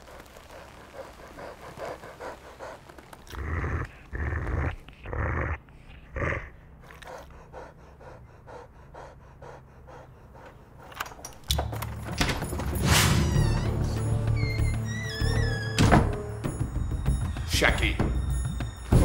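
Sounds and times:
dog panting: 0:00.0 - 0:11.5
dog deep vocal sounds: 0:01.3 - 0:11.0.

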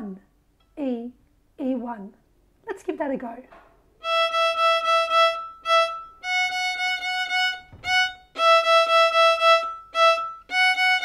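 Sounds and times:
violin short repeated bow strokes: 0:04.0 - 0:11.0.

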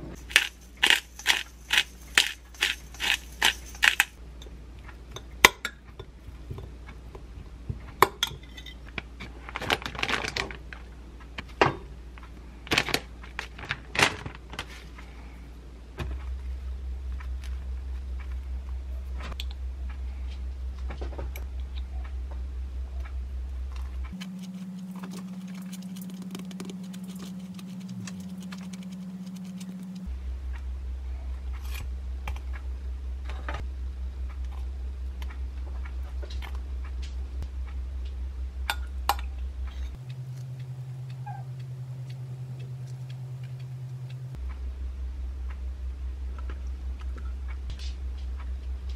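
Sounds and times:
low hum: 0:00.0 - 0:09.0, 0:15.0 - 0:48.9
hands clicking and rustling: 0:00.2 - 0:04.2, 0:24.1 - 0:30.1.

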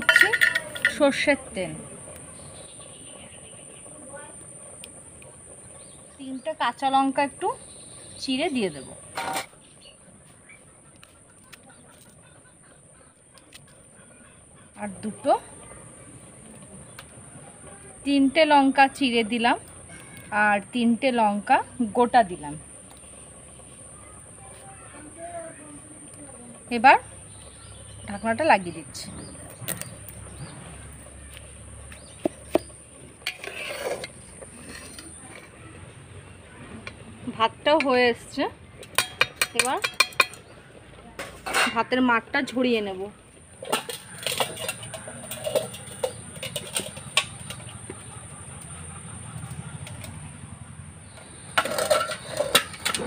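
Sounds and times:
knife clinking on steel box: 0:00.0 - 0:01.0
insects droning: 0:00.0 - 0:53.0.

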